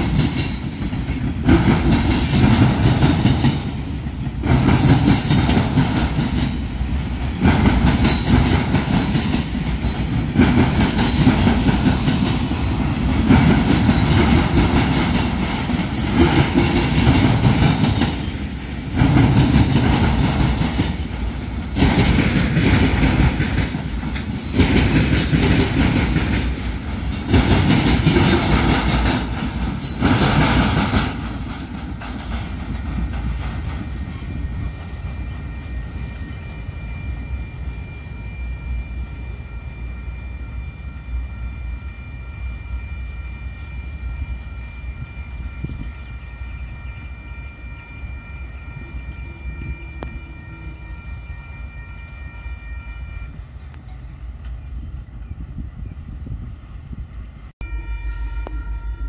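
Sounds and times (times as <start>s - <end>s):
train wheels clicking over rail joints: 0.0s - 36.6s
train rumble: 0.0s - 59.0s.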